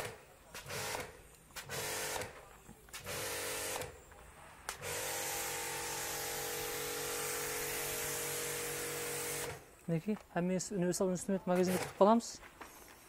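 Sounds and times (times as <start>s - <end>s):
power tool motor whining: 4.8s - 9.7s, 11.6s - 12.0s.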